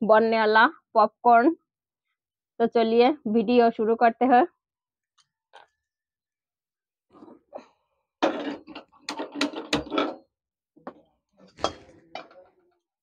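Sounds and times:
metal pots and ladle clattering: 8.2s - 10.2s, 11.5s - 12.5s.

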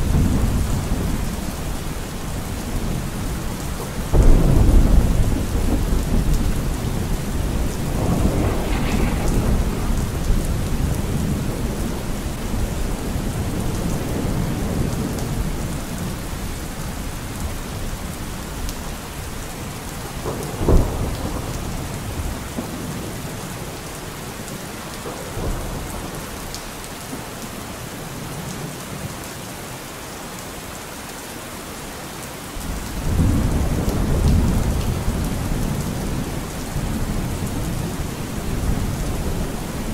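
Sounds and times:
rolling thunder: 0.0s - 16.5s, 19.3s - 23.4s, 32.6s - 39.9s
steady rain: 0.0s - 39.9s
sharp crack of thunder: 4.1s - 16.2s, 20.0s - 23.1s, 32.6s - 39.9s.

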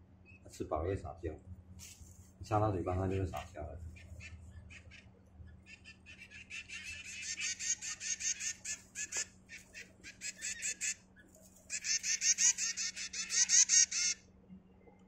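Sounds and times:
nestling birds chirping: 0.0s - 15.0s.

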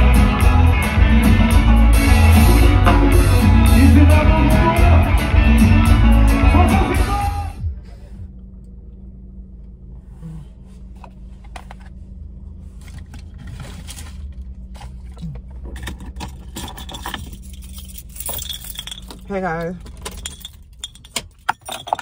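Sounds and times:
steady low hum: 0.0s - 21.7s
rustles and clicks of handling: 10.6s - 22.0s.

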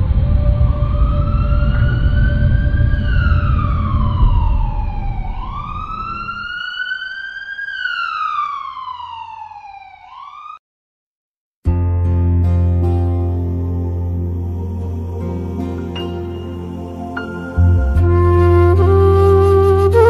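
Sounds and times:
low rumble: 0.0s - 6.7s, 13.2s - 20.0s
emergency vehicle siren wailing: 0.0s - 10.6s, 14.3s - 20.0s.

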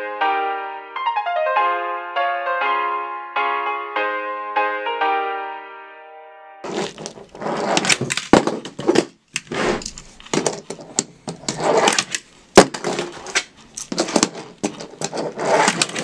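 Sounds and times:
small wheels rolling on table: 6.6s - 16.0s.

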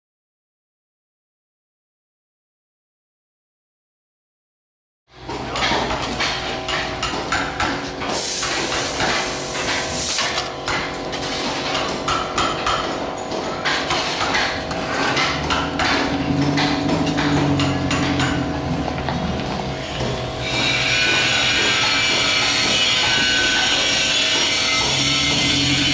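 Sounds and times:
hammer strikes on metal: 5.2s - 10.0s, 10.6s - 11.0s, 11.6s - 25.9s
low drone: 15.0s - 21.7s.

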